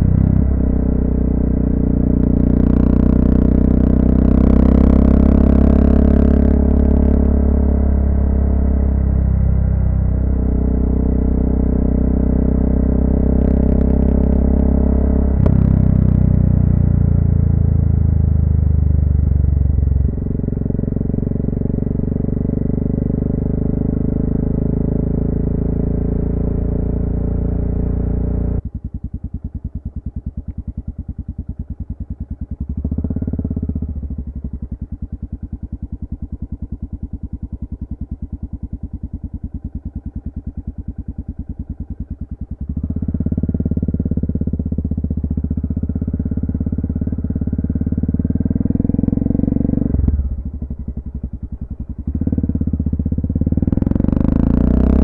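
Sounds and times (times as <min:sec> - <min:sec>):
motorcycle engine running: 0:00.0 - 0:55.0
engine idling: 0:27.5 - 0:54.4.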